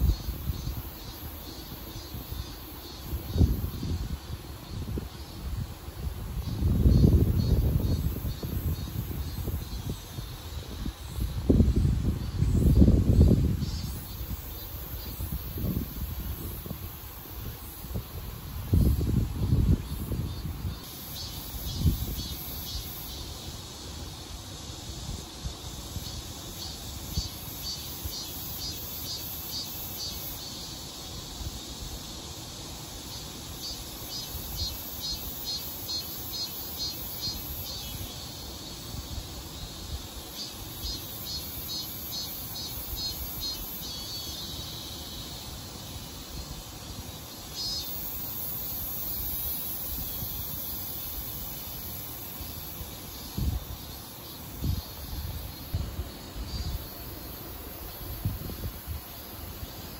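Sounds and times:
cicadas singing: 0.0 - 59.9
wind rumble on microphone: 3.2 - 14.4, 15.0 - 20.8, 53.2 - 53.8, 54.6 - 56.9, 58.0 - 59.0.

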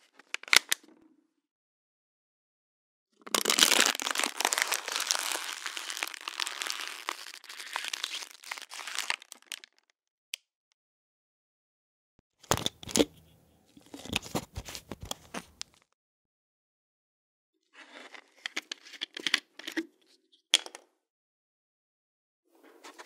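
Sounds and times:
plastic bottle crinkling: 3.3 - 9.8.

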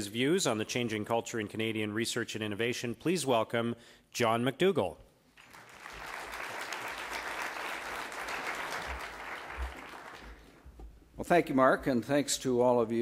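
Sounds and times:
audience applauding: 5.4 - 10.6.

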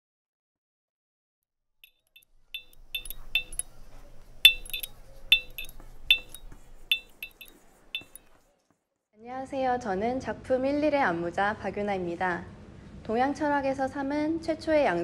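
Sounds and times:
electrical clicks and tinks: 1.8 - 8.3.

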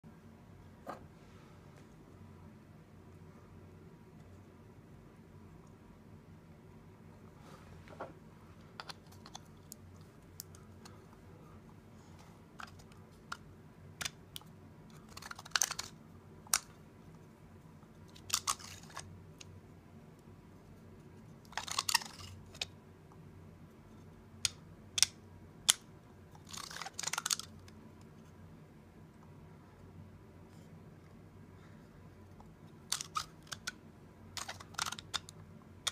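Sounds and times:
sharp plastic clicks: 24.4 - 27.8, 32.9 - 33.8, 34.4 - 35.9.

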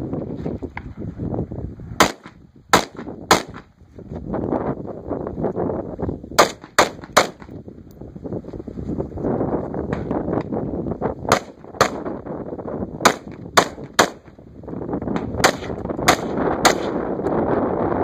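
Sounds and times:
gunshots: 2.0 - 3.7, 6.4 - 7.5, 11.3 - 12.1, 13.0 - 14.3, 15.1 - 17.2.

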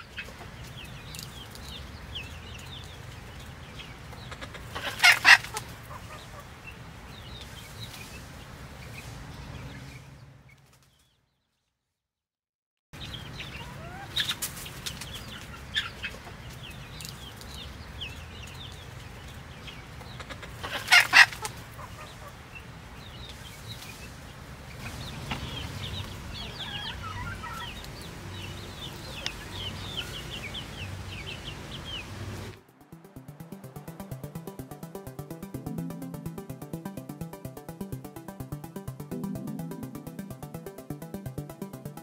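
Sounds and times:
hens clucking: 4.3 - 6.4.

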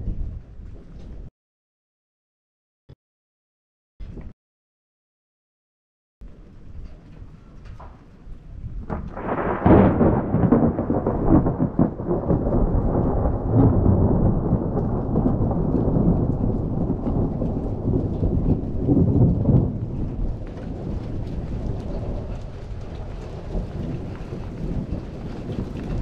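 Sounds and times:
rolling thunder: 8.5 - 26.0.

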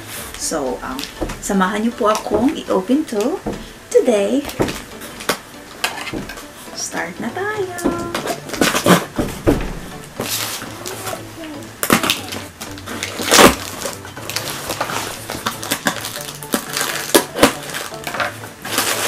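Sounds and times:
cardboard flaps knocking and rustling: 7.8 - 10.6
tool scraping through packing tape: 8.2 - 9.1, 11.8 - 19.0.

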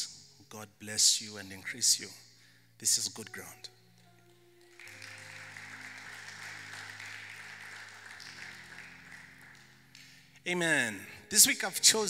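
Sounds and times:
soft keyboard chords: 0.0 - 12.0
audience applauding: 4.2 - 10.3.

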